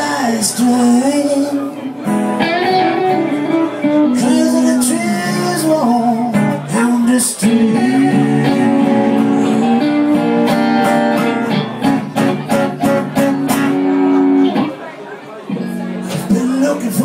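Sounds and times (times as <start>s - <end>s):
man singing: 0.0s - 1.9s, 3.3s - 10.3s, 16.1s - 17.0s
acoustic and electric guitars: 0.0s - 17.0s.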